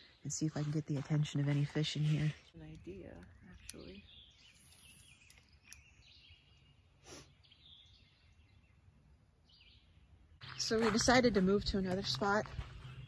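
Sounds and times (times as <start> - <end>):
faint bird chirps: 1.9 - 10.9.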